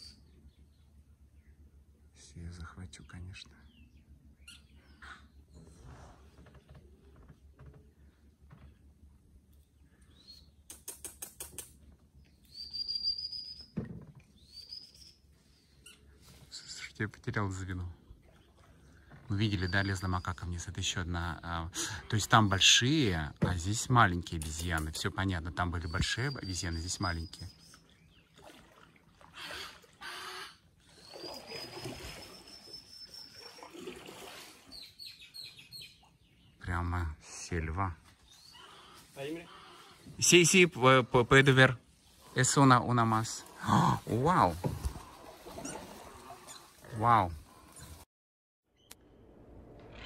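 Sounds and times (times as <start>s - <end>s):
birds whistling: 10.0s - 10.7s, 12.3s - 16.1s, 19.3s - 20.6s, 24.9s - 28.3s, 30.1s - 33.8s, 34.7s - 36.6s, 38.2s - 40.0s
sharp bird clicks: 10.6s - 11.8s
water lapping against boat hull: 18.0s - 20.1s, 25.7s - 35.1s, 43.0s - 48.0s.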